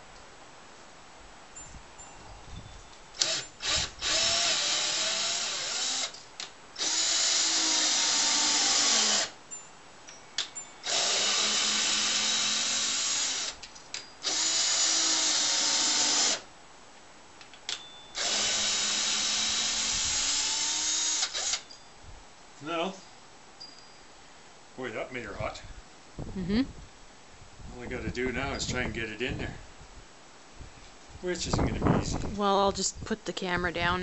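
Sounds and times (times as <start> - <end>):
cordless drill whining into wood: 3.2 - 6.2, 6.8 - 9.4, 10.8 - 13.6, 14.2 - 16.5, 18.1 - 21.7.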